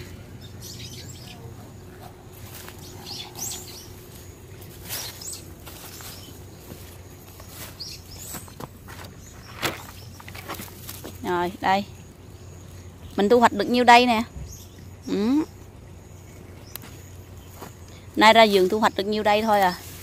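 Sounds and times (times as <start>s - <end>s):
birds chirping: 0.0s - 20.0s
low steady hum: 0.0s - 20.0s.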